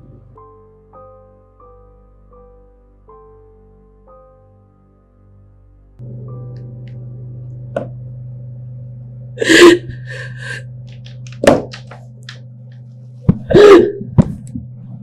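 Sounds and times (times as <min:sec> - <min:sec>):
low hum: 0:06.0 - 0:15.0
woman sobbing: 0:09.4 - 0:10.7.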